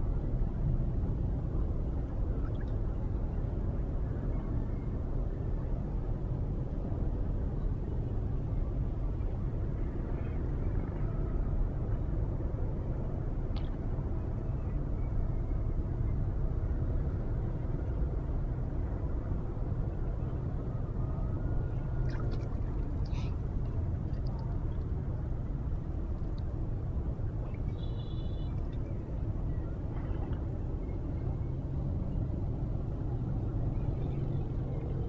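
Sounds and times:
low outdoor rumble: 0:00.0 - 0:35.0.

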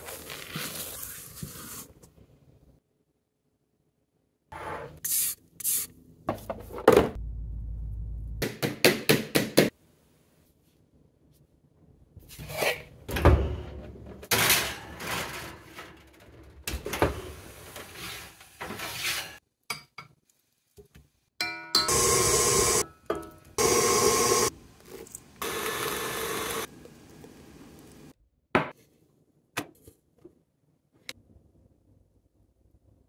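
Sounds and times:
kitchen utensils knocking and clinking: 0:22.8 - 0:23.6.

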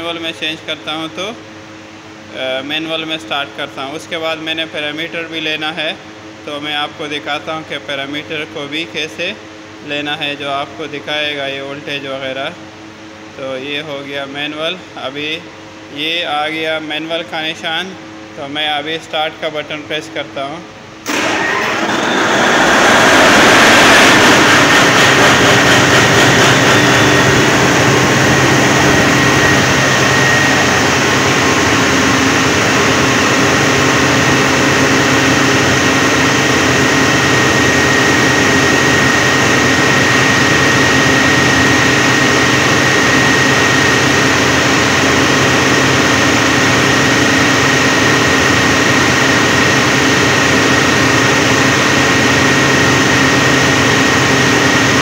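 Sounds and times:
steady high whine: 0:00.0 - 0:55.0
generator engine running: 0:20.9 - 0:55.0.

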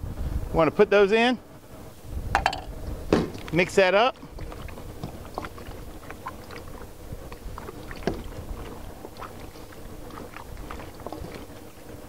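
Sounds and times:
low steady rumble: 0:00.0 - 0:12.0
wet squelches and sloshing: 0:03.2 - 0:12.0.

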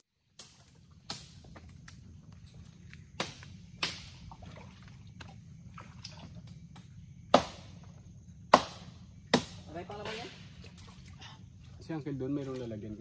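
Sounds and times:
wood being struck and chopped: 0:00.4 - 0:01.5, 0:03.2 - 0:04.2, 0:06.7 - 0:07.8, 0:08.5 - 0:10.5.

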